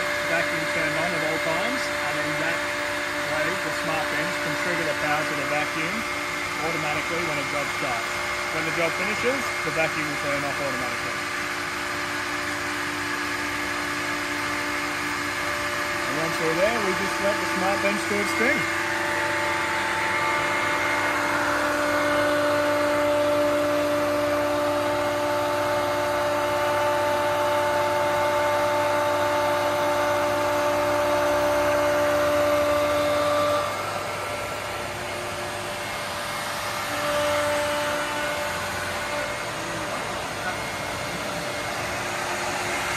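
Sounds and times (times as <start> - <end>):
router spindle whining: 0.0 - 42.9
vacuum humming: 0.0 - 42.9.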